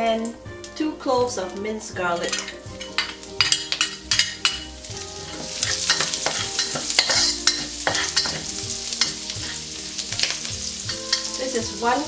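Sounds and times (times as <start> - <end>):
garlic sizzling in hot oil: 0.0 - 12.0
metal spatula scraping a wok: 2.1 - 11.8.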